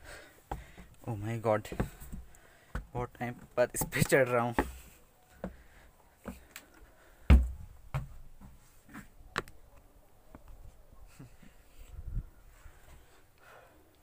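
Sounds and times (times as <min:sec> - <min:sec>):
dull thump: 0:07.3 - 0:08.2.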